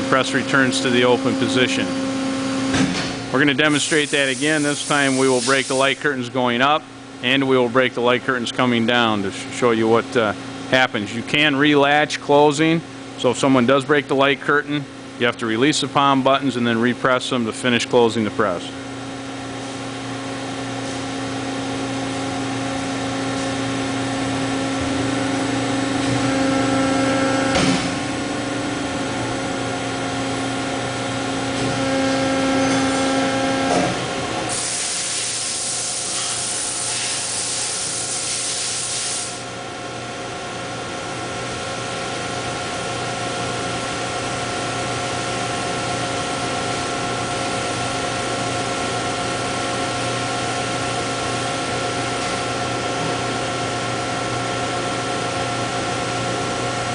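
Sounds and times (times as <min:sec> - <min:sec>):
hydraulic pump hum with whine: 0:00.0 - 0:56.9
hydraulic hiss: 0:03.6 - 0:06.0, 0:34.5 - 0:39.5
press clunk: 0:27.5 - 0:28.1.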